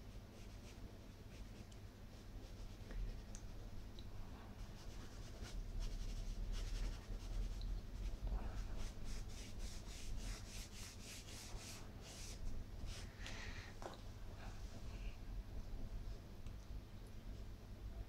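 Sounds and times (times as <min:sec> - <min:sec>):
pastel scratching on paper: 0:04.6 - 0:13.0.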